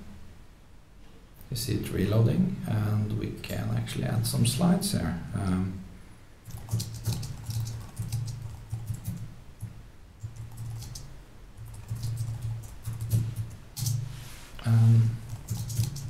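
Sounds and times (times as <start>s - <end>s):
computer keyboard typing: 6.5s - 14.1s, 15.2s - 16.0s.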